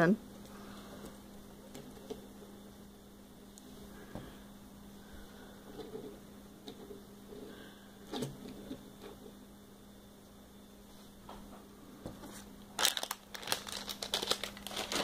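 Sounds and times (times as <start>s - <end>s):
low electrical hum: 0.0s - 15.0s
plastic packet crinkling: 12.7s - 15.0s.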